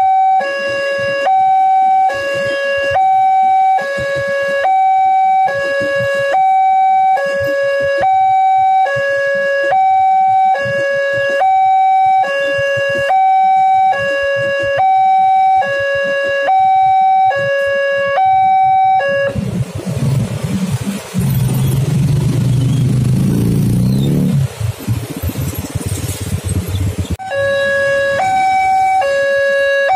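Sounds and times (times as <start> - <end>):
two-tone level crossing alarm: 0.0 - 19.4, 27.2 - 29.9.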